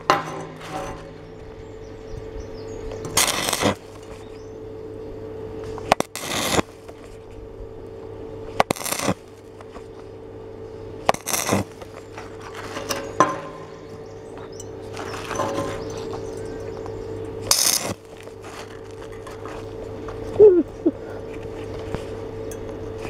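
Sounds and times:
steady hum: 0.0s - 23.0s
welding arc crackling: 2.9s - 4.3s, 5.6s - 7.2s, 7.8s - 10.1s, 11.0s - 21.1s.

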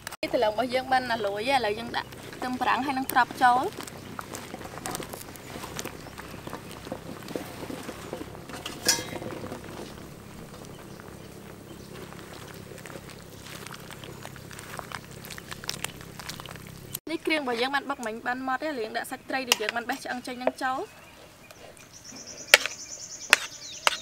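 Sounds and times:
soup bubbling in a wok: 1.7s - 17.0s.

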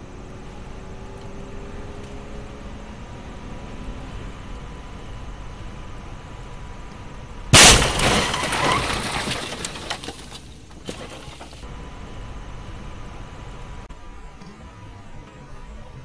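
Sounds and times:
car running noise: 0.0s - 16.0s
breaking and rattling: 7.5s - 11.6s
loud car crash impact: 7.5s - 11.7s.

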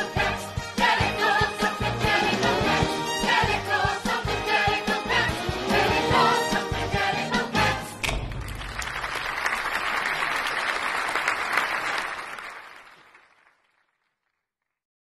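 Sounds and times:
audience applauding: 8.2s - 14.2s.

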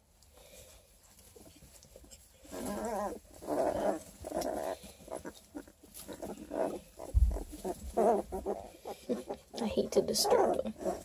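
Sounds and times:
puppies crying: 2.5s - 9.6s
low thump: 7.1s - 7.5s.

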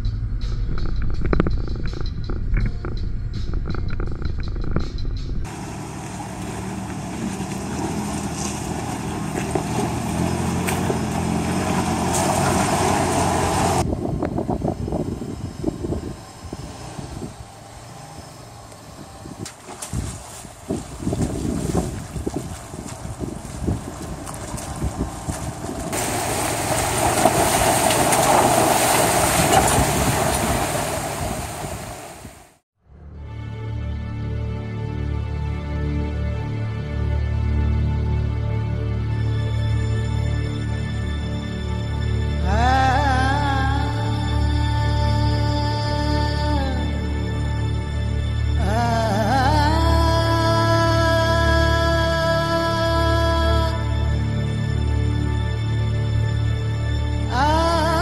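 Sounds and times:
truck engine running: 0.0s - 32.6s
tyres splashing through water: 5.5s - 13.8s, 19.4s - 32.6s.

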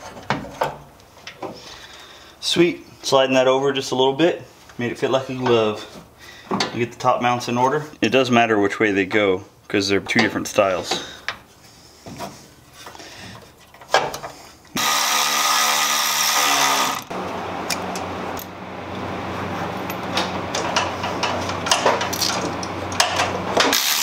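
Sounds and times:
mechanical hum: 0.0s - 24.0s
power tool running: 14.8s - 18.5s, 23.6s - 24.0s.

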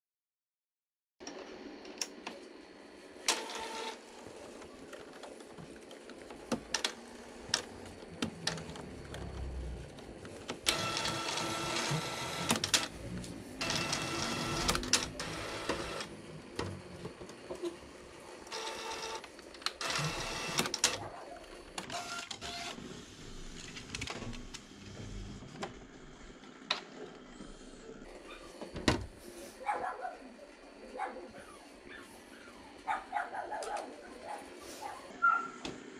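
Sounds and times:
printer motor whirring and rattling: 1.3s - 29.2s.

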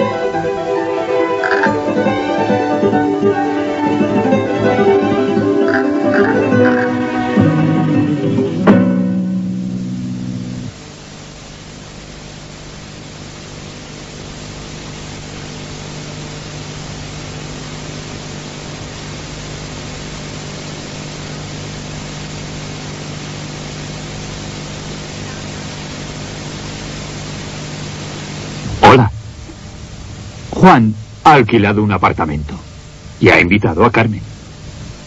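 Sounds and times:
music held chord: 0.0s - 10.7s
steady hiss: 0.0s - 35.0s
low hum: 5.2s - 35.0s.

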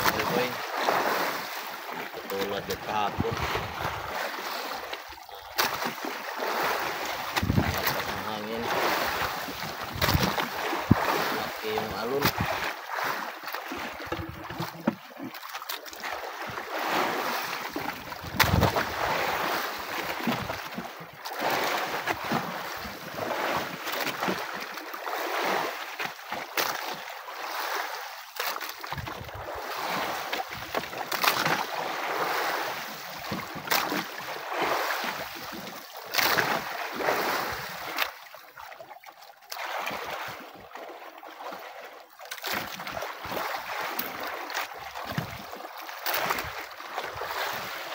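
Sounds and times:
sea waves washing against boat: 0.0s - 47.9s
wind buffeting microphone: 7.4s - 7.9s.

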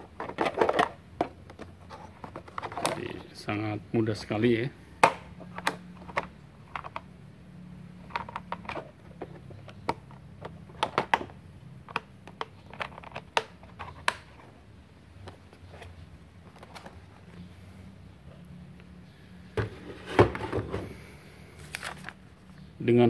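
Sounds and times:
plastic parts clicking and knocking: 0.0s - 3.1s, 5.0s - 7.1s, 8.0s - 14.4s.

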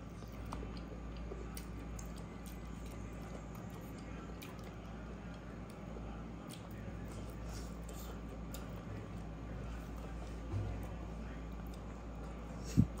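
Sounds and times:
chewing smacks: 0.0s - 9.2s
low hum: 8.6s - 13.0s.

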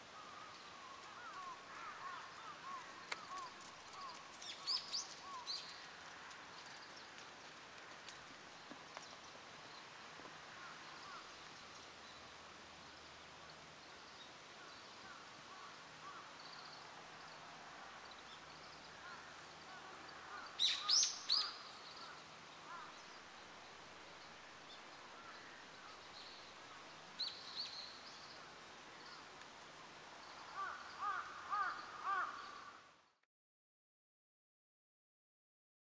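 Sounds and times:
faint steady hiss: 0.0s - 33.2s
bird calls: 0.1s - 7.3s, 18.3s - 23.0s, 30.3s - 32.9s.

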